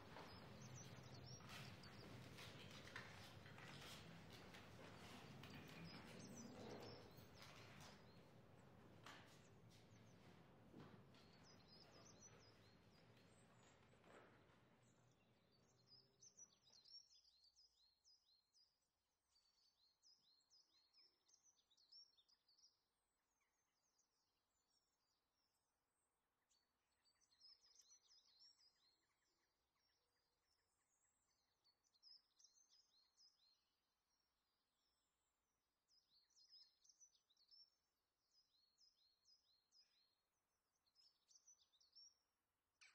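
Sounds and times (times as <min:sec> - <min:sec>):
soft scratchy noise: 0:00.0 - 0:14.6
small birds chirping: 0:00.0 - 0:24.0, 0:26.5 - 0:33.7, 0:35.9 - 0:42.2.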